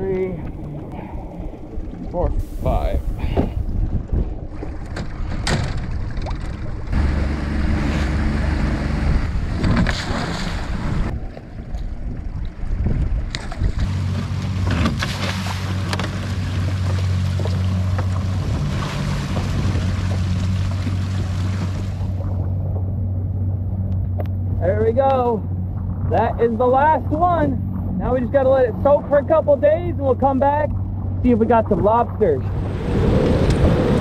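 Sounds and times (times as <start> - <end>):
wind on microphone: 0.0 - 15.0, 18.3 - 22.8, 31.0 - 34.0
water rushing past hull: 0.0 - 23.8, 25.4 - 34.0
outboard motor running: 0.0 - 34.0.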